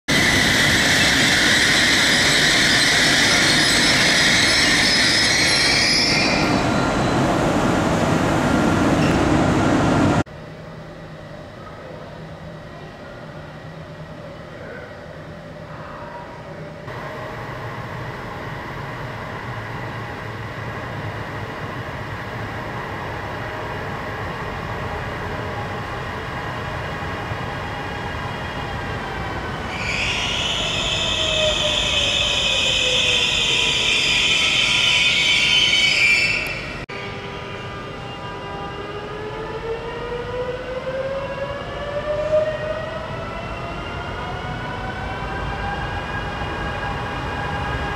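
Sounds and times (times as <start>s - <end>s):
high-pitched shriek: 0.1s - 7.1s, 29.7s - 37.4s
train rumble: 0.1s - 10.3s.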